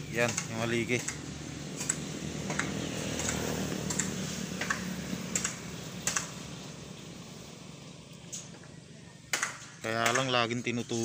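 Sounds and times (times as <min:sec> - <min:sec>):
sharp clicks: 0:00.2 - 0:01.2, 0:01.8 - 0:06.3.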